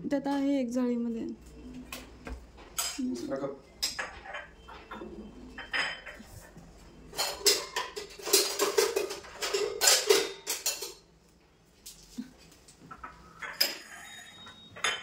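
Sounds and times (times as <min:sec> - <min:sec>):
metal dishes clattering in rack: 0:03.8 - 0:06.3, 0:07.1 - 0:11.1, 0:12.9 - 0:15.0.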